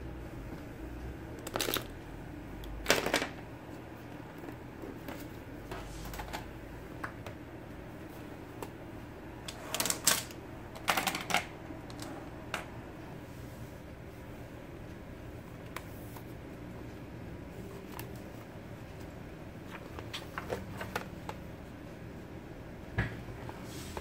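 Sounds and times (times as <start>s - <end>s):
plastic pens clacking on desk: 1.4s - 1.9s.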